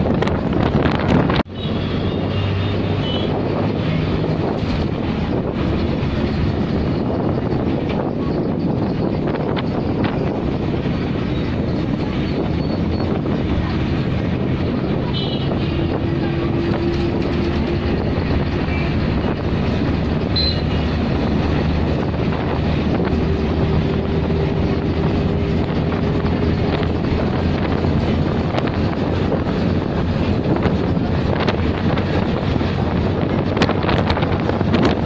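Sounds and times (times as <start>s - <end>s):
bus engine and road rumble: 0.0s - 35.0s.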